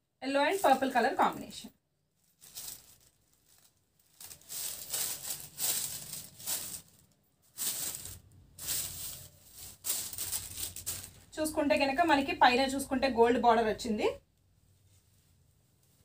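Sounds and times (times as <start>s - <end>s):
fabric rustling and swishing: 2.2s - 11.4s.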